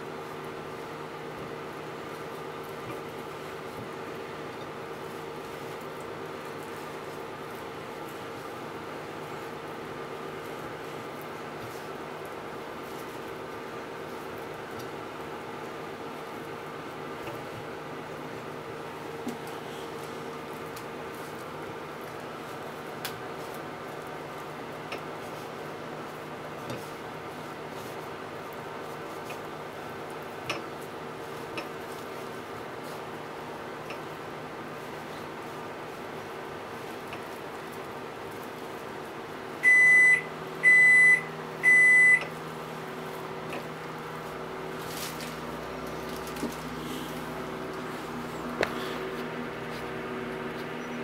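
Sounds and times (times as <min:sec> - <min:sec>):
steady background hum: 0:00.0 - 0:51.0
low steady hum: 0:38.7 - 0:51.0.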